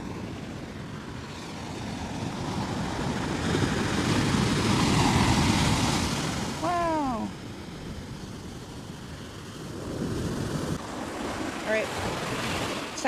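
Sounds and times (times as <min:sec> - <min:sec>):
wave breaking on sandy beach: 0:00.0 - 0:13.0.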